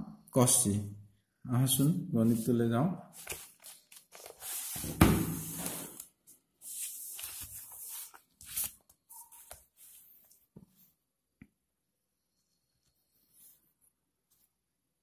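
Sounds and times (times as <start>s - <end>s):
paper rustling: 3.2s - 10.4s.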